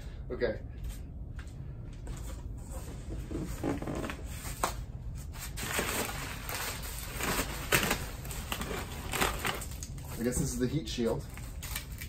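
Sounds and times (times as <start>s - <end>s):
packing material rustling: 3.6s - 12.0s.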